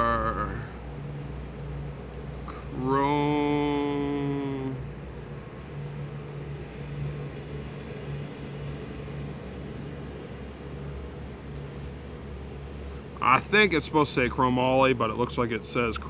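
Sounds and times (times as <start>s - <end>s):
man saying uh: 0.0s - 0.7s, 2.5s - 4.8s
low background hum: 0.0s - 16.0s.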